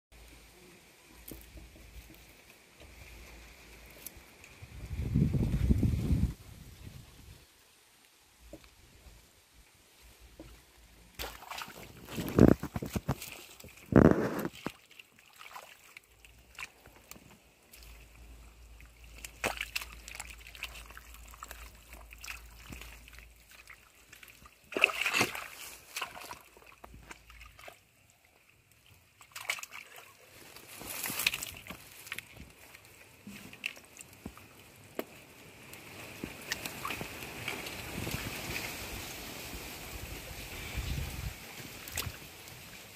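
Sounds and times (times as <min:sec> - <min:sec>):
muddy water sloshing: 0:10.2 - 0:40.2, 0:40.9 - 0:42.9.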